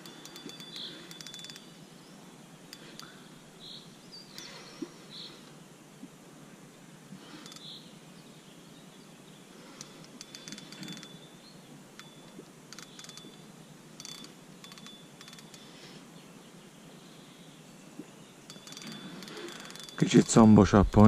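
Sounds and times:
fishing reel clicking: 0.0 - 1.7, 9.8 - 11.2, 12.0 - 13.4, 14.0 - 15.7, 18.5 - 20.1.

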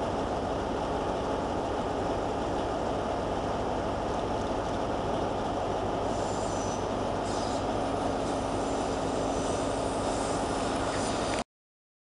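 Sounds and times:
train wheels rumbling on rail: 0.0 - 11.4
high wheel squeal: 6.1 - 7.6.

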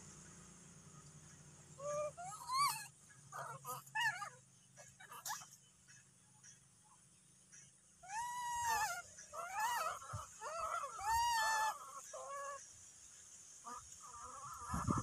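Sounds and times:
young monkey crying: 1.8 - 5.6, 8.0 - 12.7.

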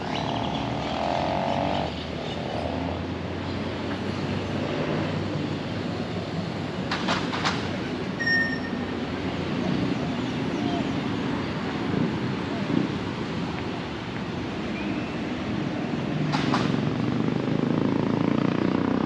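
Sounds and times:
passing car traffic: 0.0 - 19.0
short high beep: 8.2 - 8.9.

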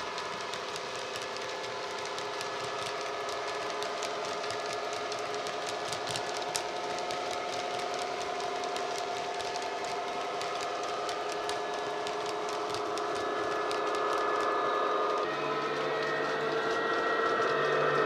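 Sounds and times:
model wagon wheels ticking on track: 0.0 - 18.0.

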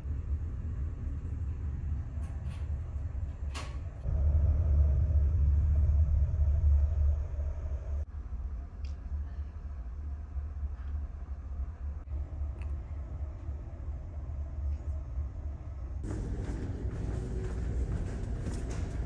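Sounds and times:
ship engines rumbling: 2.8 - 8.1, 11.6 - 19.0.

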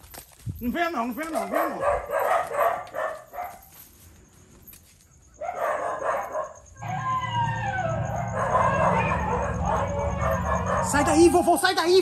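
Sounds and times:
falling werewolf howl: 6.8 - 11.8.

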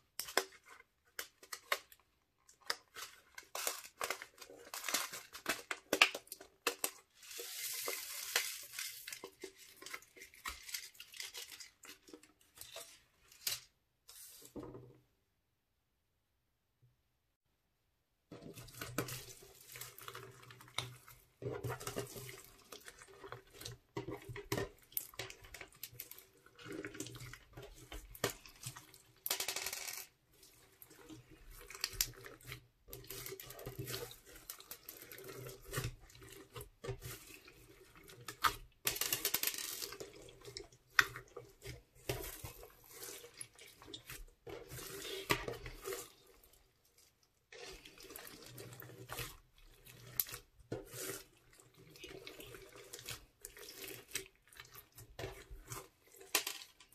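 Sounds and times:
hands squishing crunchy slime: 30.4 - 56.4.

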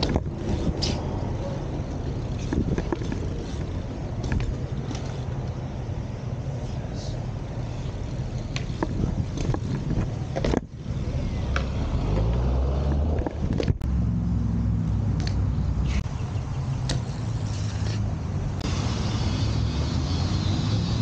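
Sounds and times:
bike clicks and knocks: 0.0 - 5.8, 7.8 - 13.9, 15.1 - 16.0, 16.8 - 18.1
bike tyres rolling on paving: 0.0 - 13.8
road traffic hum: 0.0 - 21.0.

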